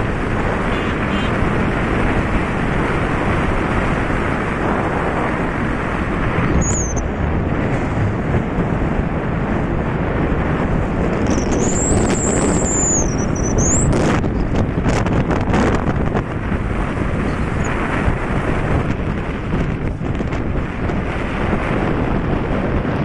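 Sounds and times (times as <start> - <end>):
road noise from moving vehicle: 0.0 - 23.0
wind buffeting microphone: 0.0 - 23.0
high warbling whistle: 6.5 - 7.0, 11.3 - 13.9
high whistling tone: 6.5 - 7.0, 11.3 - 13.9.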